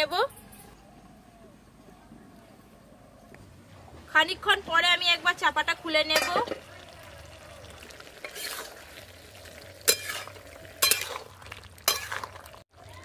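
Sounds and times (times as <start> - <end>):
curry sizzling: 4.9 - 13.0
metal spatula scraping pot: 8.2 - 8.9, 9.8 - 12.4.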